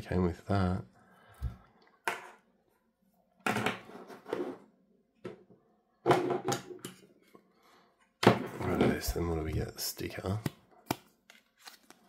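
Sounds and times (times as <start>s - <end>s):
objects knocking on a desk: 6.0s - 6.9s
packing paper rustling: 10.9s - 12.0s.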